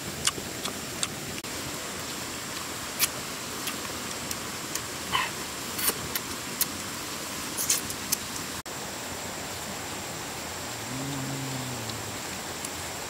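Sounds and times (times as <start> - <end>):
river water flowing: 0.1 - 13.0
people eating by hand: 10.8 - 12.8.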